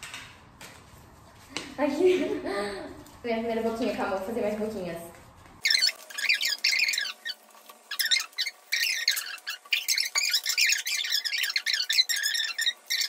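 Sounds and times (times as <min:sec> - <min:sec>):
sped-up squeaky chattering voices: 0:05.6 - 0:13.0.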